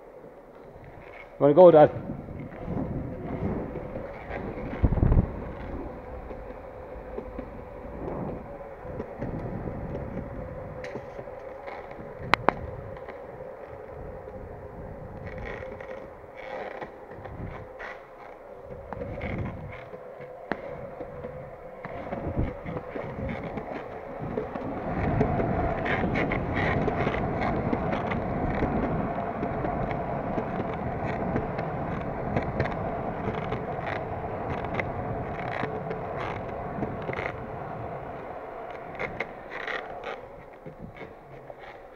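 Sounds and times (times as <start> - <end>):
longboard wheels rolling: 0.0 - 41.9.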